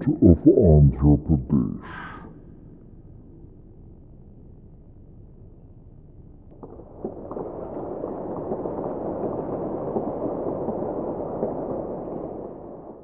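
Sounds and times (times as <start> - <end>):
audience applauding: 6.6 - 13.0.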